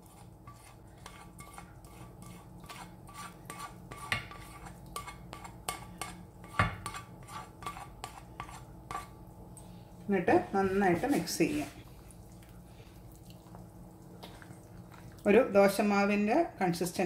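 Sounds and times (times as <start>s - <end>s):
metal spoon scraping in pan: 0.0s - 9.2s.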